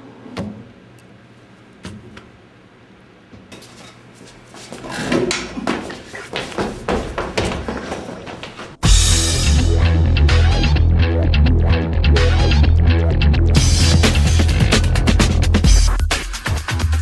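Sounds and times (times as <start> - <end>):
quick footsteps on hard floor: 4.2 - 8.8.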